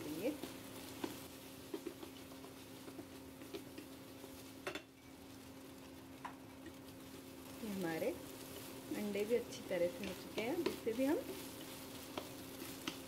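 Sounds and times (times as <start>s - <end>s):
spatula scraping and clicking on pan: 0.9s - 3.9s, 10.0s - 13.0s.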